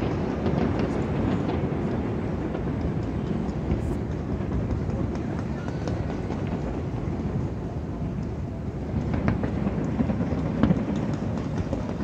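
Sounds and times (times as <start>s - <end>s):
fireworks barrage: 8.8s - 12.0s.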